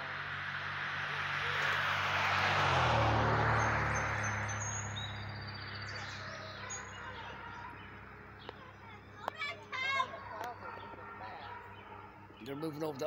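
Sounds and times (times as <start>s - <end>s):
vehicle passing by: 0.0s - 13.0s
small birds chirping: 3.5s - 13.0s.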